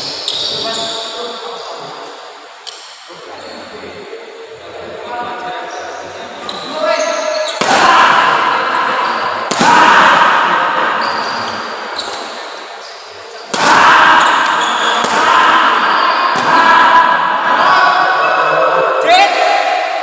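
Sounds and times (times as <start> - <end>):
voices in a hall: 0.0 - 20.0
racket hitting shuttlecock: 9.5 - 10.5, 13.5 - 17.2.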